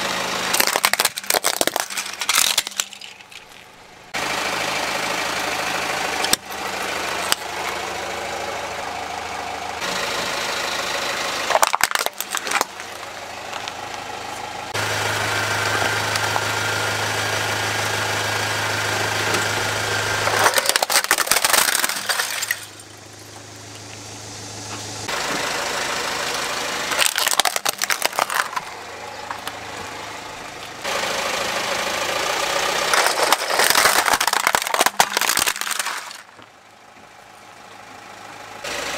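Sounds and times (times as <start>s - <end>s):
car engine running: 0.0s - 38.9s
plastic toys cracking: 0.5s - 3.8s, 11.5s - 12.9s, 20.2s - 22.8s, 26.9s - 28.7s, 32.9s - 36.4s.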